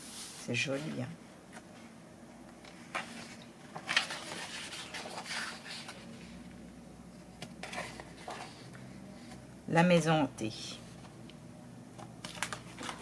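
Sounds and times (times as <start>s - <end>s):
paper pages rustling: 2.6s - 6.4s, 7.2s - 9.4s, 12.0s - 13.0s.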